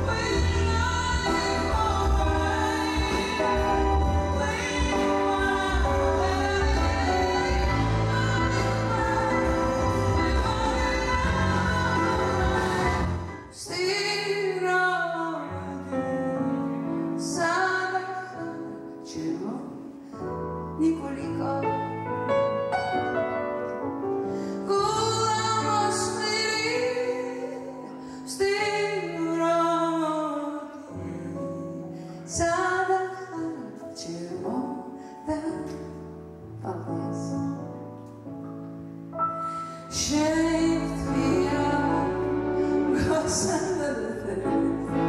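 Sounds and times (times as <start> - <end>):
bass notes: 0.0 - 13.4
live band playing slow song: 0.0 - 14.8, 22.3 - 45.0
woman singing: 0.0 - 22.2, 24.6 - 37.8, 39.6 - 45.0.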